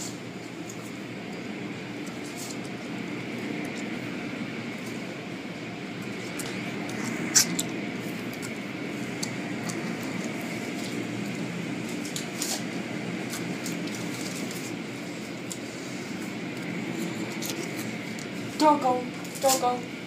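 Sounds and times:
car wash equipment humming and hissing: 0.0s - 20.0s.

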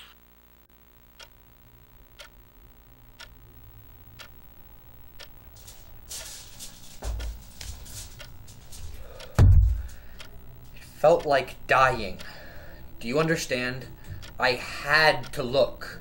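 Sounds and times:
wall clock ticking: 2.2s - 2.4s, 3.2s - 3.4s, 4.2s - 4.4s, 5.2s - 16.0s
low thump: 9.4s - 9.9s.

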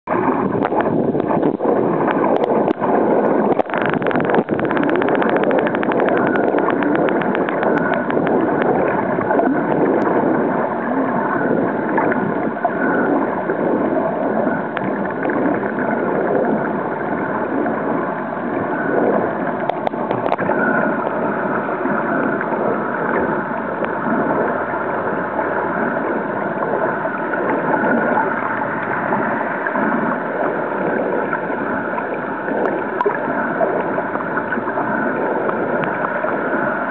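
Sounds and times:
underwater rushing and gurgling: 0.0s - 36.9s
clicks: 3.5s - 10.1s, 19.6s - 21.2s.

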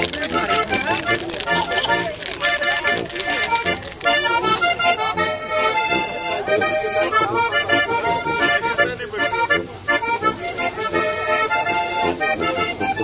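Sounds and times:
brass band playing: 4.2s - 13.0s.

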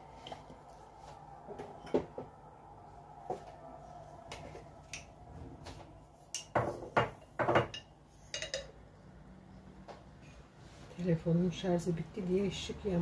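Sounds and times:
dishes and utensils clinking: 6.3s - 8.8s.

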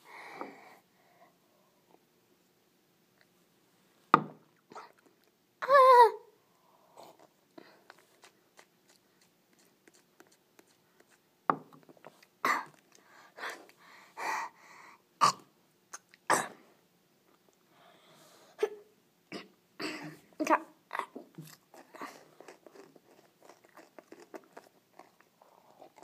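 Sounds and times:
boy coughing and huffing: 12.4s - 12.7s, 16.3s - 16.6s, 18.6s - 20.2s.

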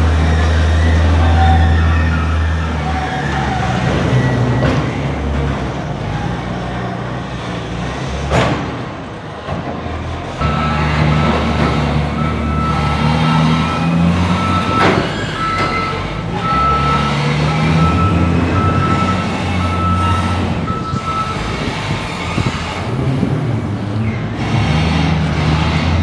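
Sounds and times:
diesel engine under load: 0.0s - 26.0s
reversing alarm beeps: 10.4s - 21.6s.

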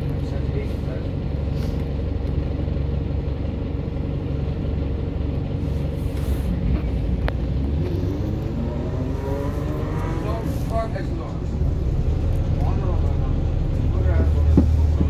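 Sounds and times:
bus engine idling: 0.0s - 15.0s
rising whine of bus pulling away: 0.0s - 15.0s.

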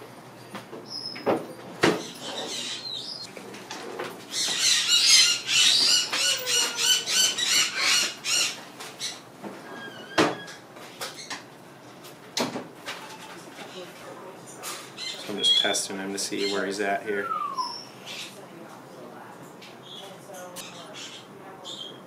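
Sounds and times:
parrot squawking harshly: 4.3s - 9.2s.

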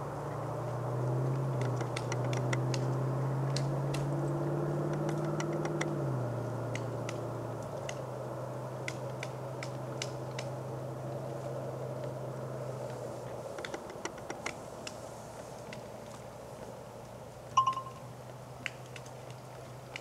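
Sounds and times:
low engine hum: 0.0s - 20.0s
woodpecker tapping on bark: 1.5s - 4.1s, 4.8s - 6.0s, 13.5s - 15.0s.

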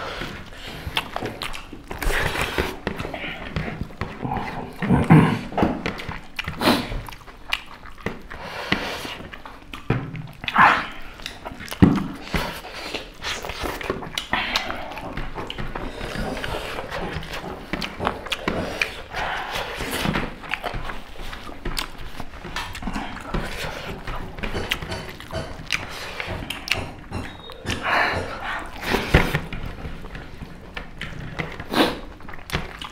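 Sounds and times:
heavy breathing: 0.0s - 5.9s, 8.3s - 9.3s, 12.0s - 20.4s, 25.3s - 29.7s
chewing and lip smacking: 0.0s - 32.9s
fingers mixing rice on plates: 0.0s - 32.9s.

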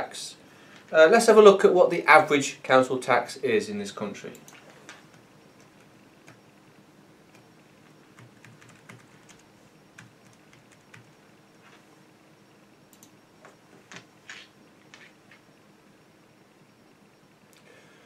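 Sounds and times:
typing on computer keyboard: 8.2s - 9.4s, 10.0s - 11.2s.

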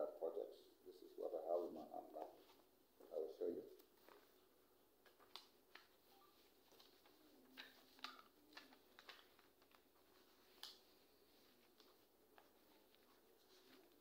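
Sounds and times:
paper pages rustling: 2.2s - 2.7s, 3.8s - 4.4s, 5.0s - 14.0s.

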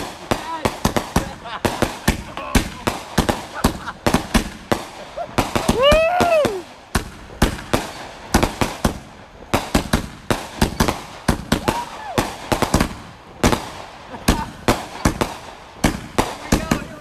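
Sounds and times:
firework bangs and pops: 0.0s - 17.0s
person shouting whoo: 5.6s - 6.8s, 11.6s - 12.3s.

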